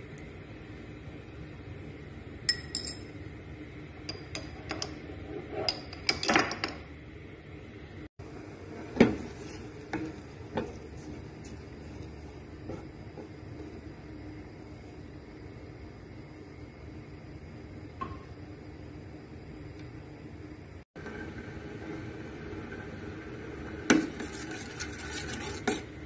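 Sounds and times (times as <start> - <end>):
utensils clinking on metal pot: 2.5 - 3.1.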